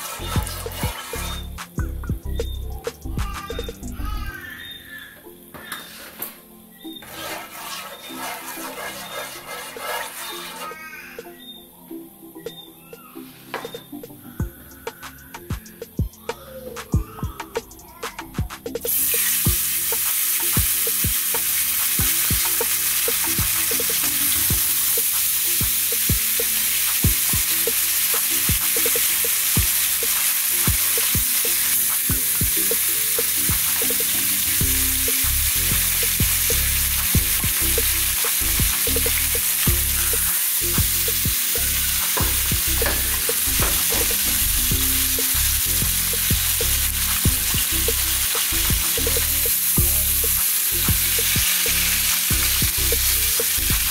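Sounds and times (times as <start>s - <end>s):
fish frying in oil: 18.9s - 53.9s.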